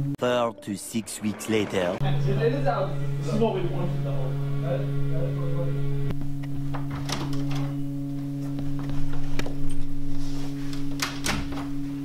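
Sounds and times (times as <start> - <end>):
low drone of held tones: 0.0 - 10.5
door clicks and knocks: 6.7 - 7.7, 11.0 - 11.7.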